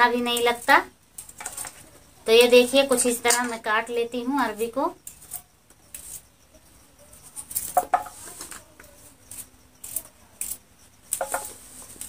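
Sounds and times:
slices clinking on steel plate: 11.2s - 11.6s.

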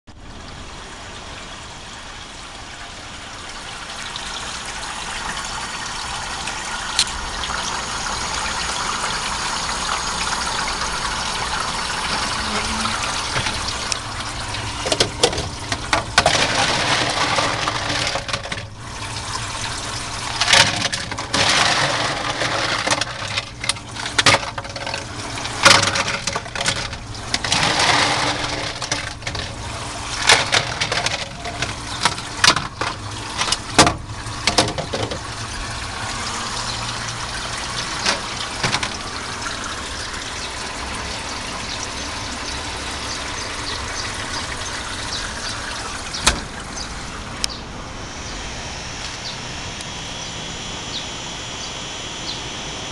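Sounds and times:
running water rushing: 0.1s - 52.9s
ice cubes clattering: 14.7s - 18.7s, 20.3s - 35.2s.

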